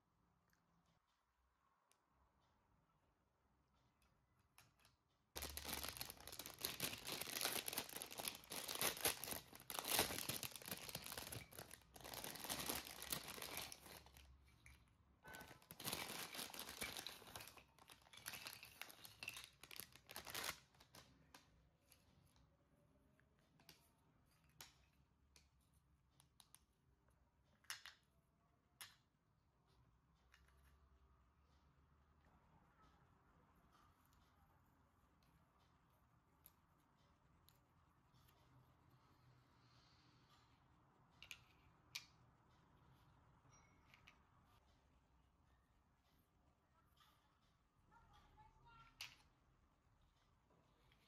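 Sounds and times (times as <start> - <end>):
packaging crackling: 5.4 - 14.3, 15.4 - 21.4.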